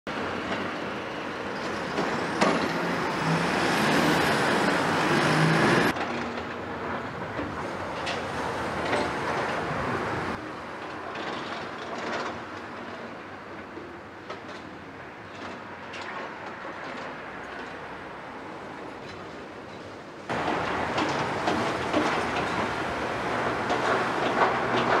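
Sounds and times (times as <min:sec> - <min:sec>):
excavator diesel engine running: 0:00.1 - 0:10.5, 0:20.3 - 0:25.0
bucket scraping and clanking: 0:20.3 - 0:25.0.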